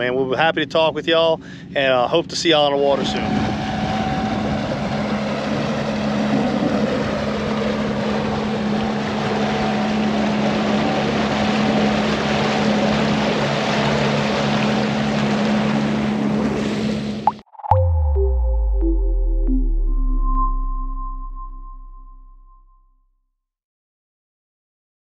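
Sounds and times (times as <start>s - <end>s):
outboard motor running: 2.9s - 17.2s
wind and water rushing: 3.0s - 17.3s.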